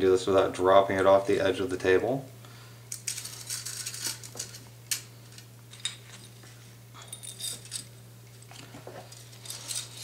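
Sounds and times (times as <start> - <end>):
metal parts clinking: 2.9 - 6.4, 7.0 - 8.0, 9.0 - 10.0.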